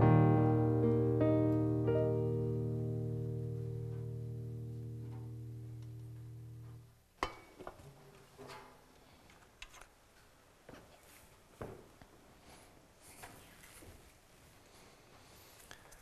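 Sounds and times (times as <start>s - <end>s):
keyboard chord with bass note: 0.0s - 6.9s.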